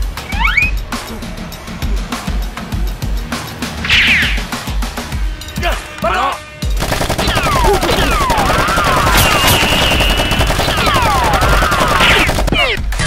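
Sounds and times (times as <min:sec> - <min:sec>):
machine-gun fire: 0:06.8 - 0:12.9
falling whistles: 0:08.9 - 0:10.4.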